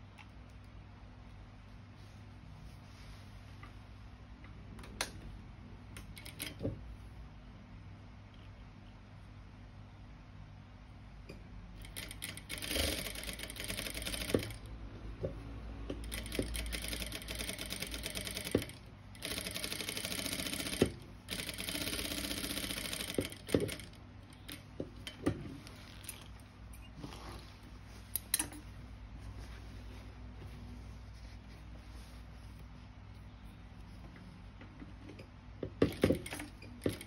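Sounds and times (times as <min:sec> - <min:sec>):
sewing machine stitching: 0:11.8 - 0:14.7, 0:15.9 - 0:26.2, 0:35.8 - 0:37.0.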